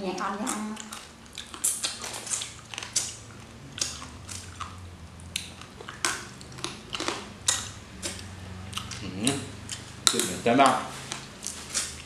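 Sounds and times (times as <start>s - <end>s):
wet chewing: 0.1s - 12.0s
crab shells crunching: 0.4s - 12.0s.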